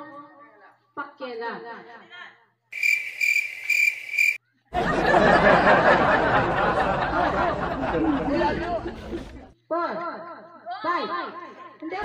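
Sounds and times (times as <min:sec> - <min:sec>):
cricket chirping sound effect: 0:02.8 - 0:04.4
group laughing: 0:04.7 - 0:09.6
group chatter: 0:04.8 - 0:09.6.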